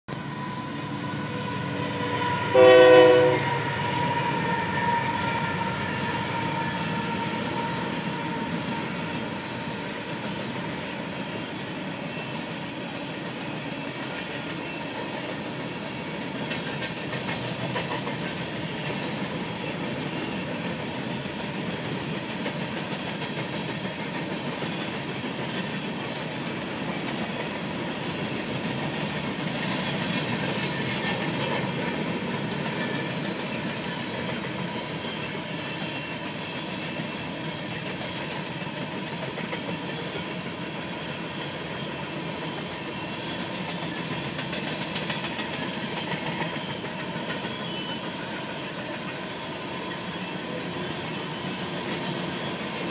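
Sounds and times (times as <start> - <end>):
locomotive horn blast: 0.1 - 8.6
train cars rumbling over bridge: 0.1 - 52.9.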